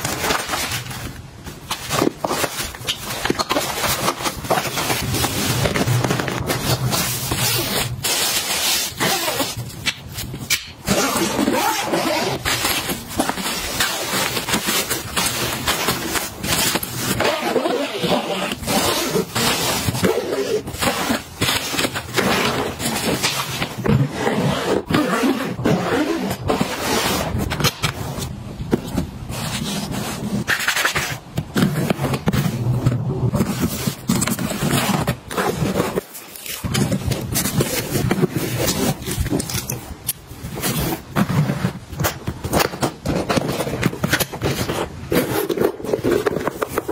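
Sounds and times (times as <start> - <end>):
rustling fabric and mesh: 0.0 - 46.9
zipper being drawn: 6.9 - 9.6, 10.9 - 23.0, 24.0 - 27.5.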